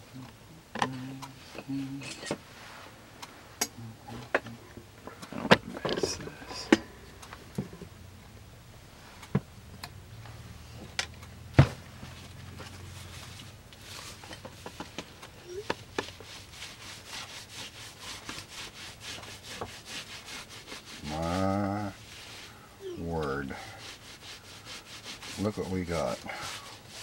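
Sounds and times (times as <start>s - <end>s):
cloth rubbing leather: 15.4s - 27.0s.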